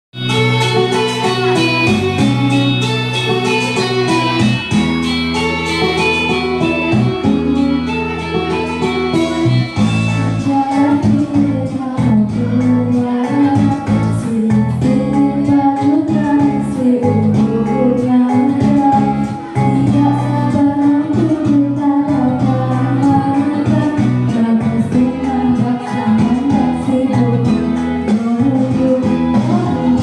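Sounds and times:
music with guitar: 0.2s - 30.0s
girl singing into microphone: 10.1s - 30.0s.

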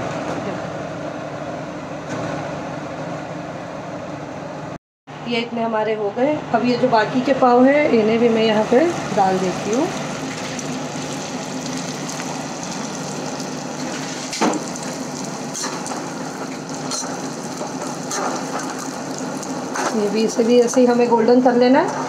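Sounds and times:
bread sizzling in hot oil: 9.0s - 20.5s.

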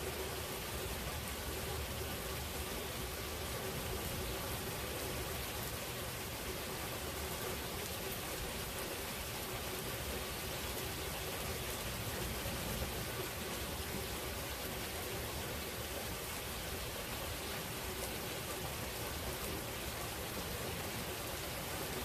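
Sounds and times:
steady rain hiss: 0.0s - 22.0s.

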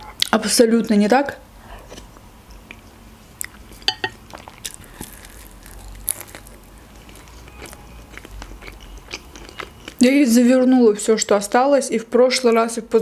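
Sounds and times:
chewing and mouth clicks: 1.9s - 10.0s.

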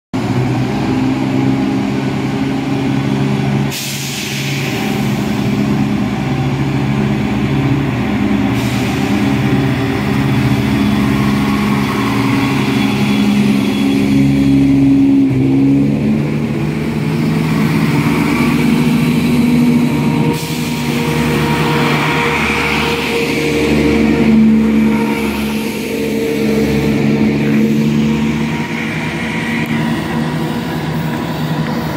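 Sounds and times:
diesel train engine droning: 0.1s - 31.9s
hiss of air: 3.7s - 6.0s, 8.4s - 14.2s, 19.0s - 28.0s.

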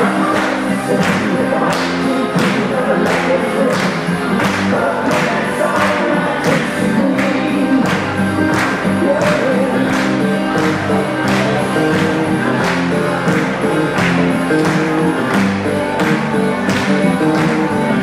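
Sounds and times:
country dance music with singer: 0.0s - 18.0s.

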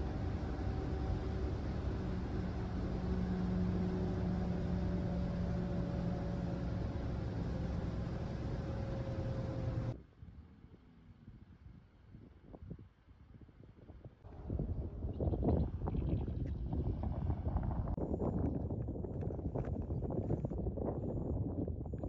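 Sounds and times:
vehicle engine rumbling: 0.0s - 10.0s, 14.3s - 21.4s
faint wind noise: 0.0s - 22.0s.

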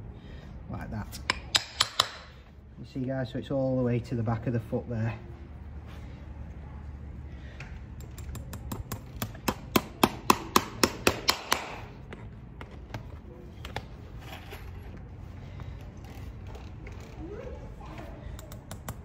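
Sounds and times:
hammer tapping horseshoe: 1.2s - 2.4s, 8.0s - 11.9s.

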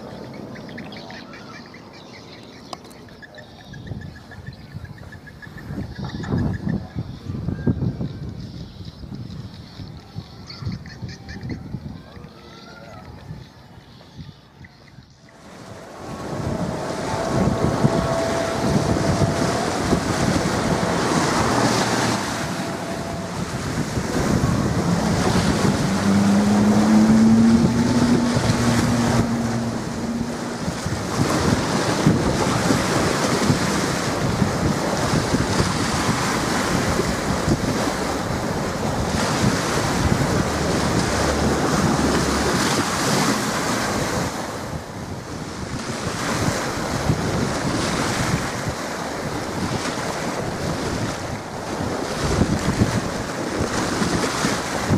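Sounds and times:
choppy water washing: 0.0s - 54.9s
wind buffeting microphone: 3.0s - 54.9s.

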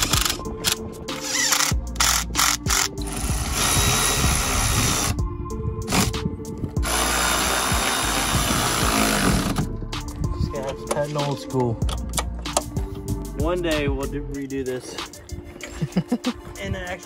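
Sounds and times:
cordless power tool driving fasteners: 0.0s - 5.2s, 6.8s - 9.7s
background music: 0.0s - 17.0s.

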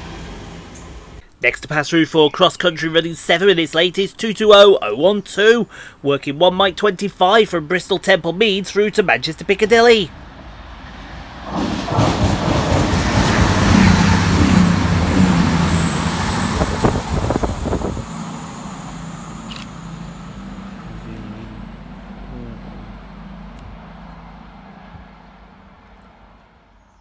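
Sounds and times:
wheels rumbling on rails: 0.0s - 1.2s, 9.5s - 26.9s
train engine drone: 0.0s - 1.3s, 9.4s - 26.9s.

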